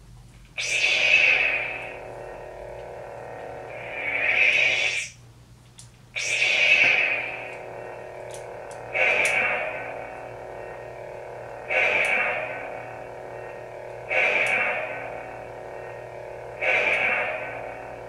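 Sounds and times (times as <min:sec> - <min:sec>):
lightsaber swelling effect: 0:00.6 - 0:05.2, 0:06.2 - 0:18.0
lightsaber hum: 0:00.6 - 0:18.0.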